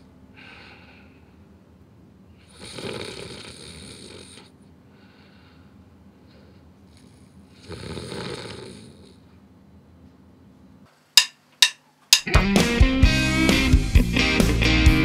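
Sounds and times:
man snoring: 2.4s - 4.5s, 7.5s - 9.2s
drumsticks clicking together: 11.2s - 12.4s.

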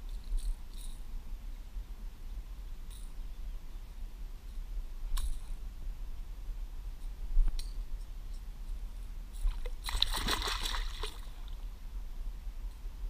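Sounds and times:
fish splashing at surface: 9.6s - 11.4s.

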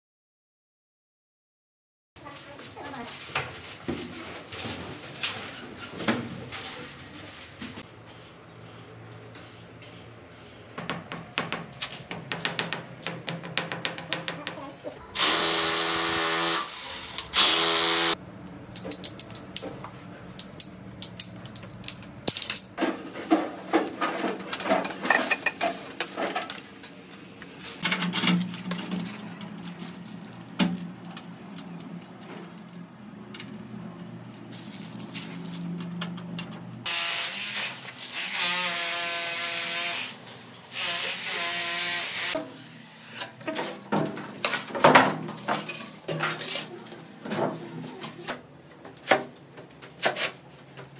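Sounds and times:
knocks and clicks of hand work: 10.8s - 14.7s
power tool running: 15.2s - 18.2s, 36.8s - 42.4s
rotary hammer drill into concrete: 15.2s - 18.2s.

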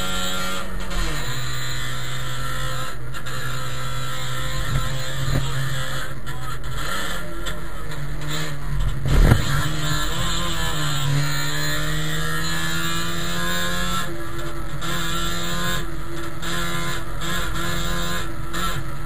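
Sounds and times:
two-stroke car engine: 0.0s - 19.0s
loud thump: 9.0s - 9.6s.

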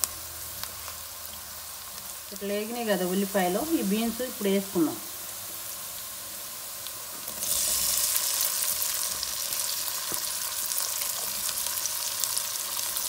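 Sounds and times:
onions sizzling in hot oil: 0.0s - 13.0s
wet beans crackling in oil: 0.0s - 13.0s.

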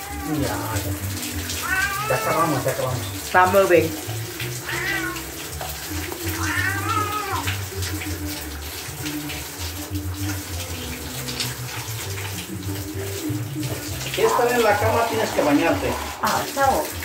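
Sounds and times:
cat crying: 0.0s - 3.0s, 4.5s - 5.5s, 6.1s - 7.7s
cat meowing: 0.0s - 3.1s, 4.5s - 5.5s, 6.1s - 7.6s
water splashing in a tub: 0.0s - 17.0s.

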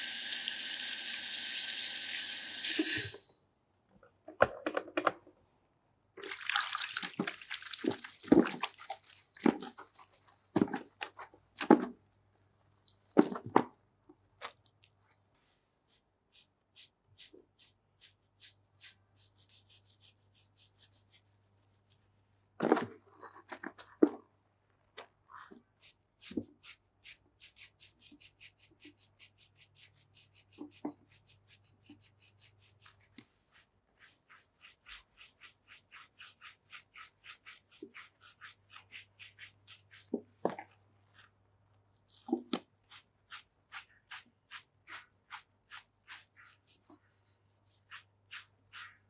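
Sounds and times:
fingers scrubbing wet hair: 25.8s - 41.3s, 42.8s - 47.0s, 47.7s - 49.0s.

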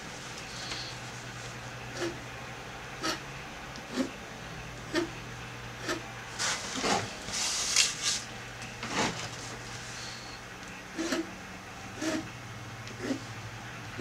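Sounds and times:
pen scratching on paper: 2.0s - 2.2s, 3.9s - 4.1s, 12.0s - 12.3s, 13.0s - 13.2s.

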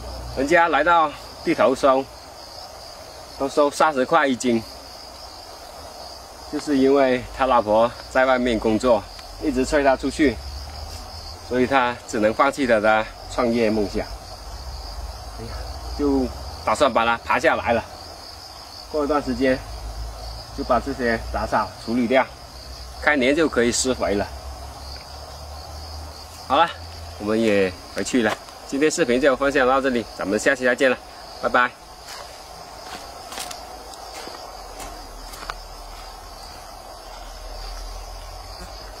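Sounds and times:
crickets chirring: 0.0s - 39.0s
insects trilling: 0.0s - 39.0s
man speaking: 6.5s - 10.4s, 11.5s - 14.2s, 15.4s - 17.9s, 23.0s - 24.3s, 26.5s - 31.8s.

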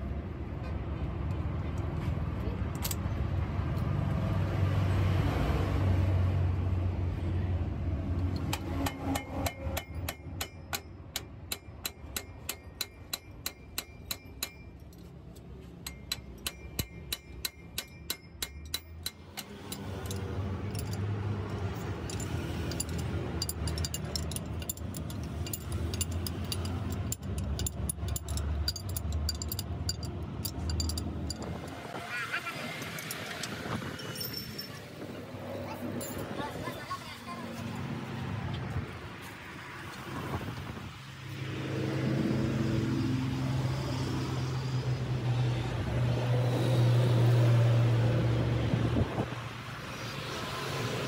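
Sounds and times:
spanner clicking on metal: 8.2s - 31.8s.

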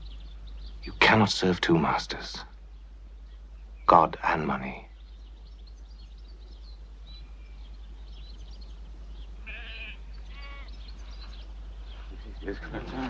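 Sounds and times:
steady low hum: 0.0s - 13.0s
animal bleats: 9.4s - 10.9s.

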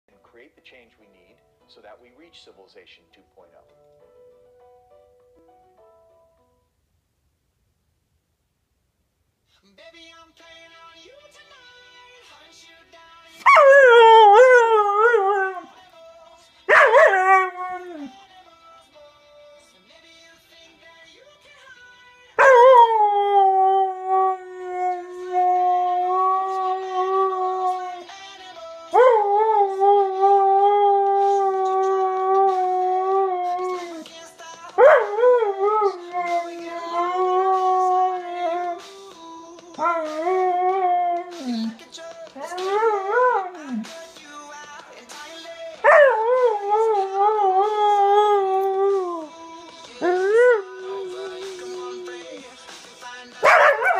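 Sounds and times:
pop song playing quietly: 0.1s - 6.6s, 9.4s - 53.9s
husky howling: 13.4s - 15.7s, 16.7s - 18.1s, 22.4s - 28.0s, 34.8s - 38.8s, 45.8s - 49.3s, 50.0s - 52.2s, 53.4s - 53.9s.

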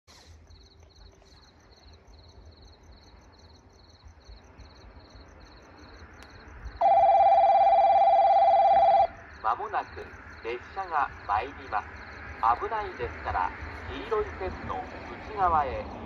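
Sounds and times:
insects chirping: 0.2s - 16.0s
electronic ringing warning tone: 6.8s - 9.2s.

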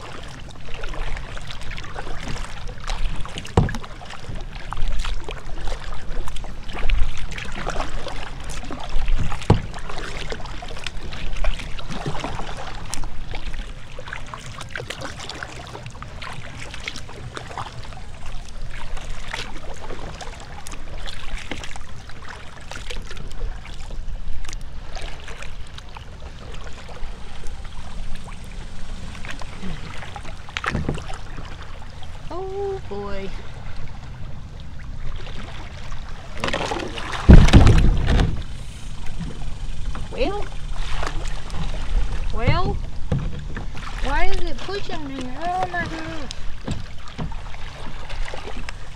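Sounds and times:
kayak paddle strokes: 0.0s - 48.9s
water splashing against hull: 0.0s - 48.9s
wind rumble on microphone: 26.4s - 48.9s.

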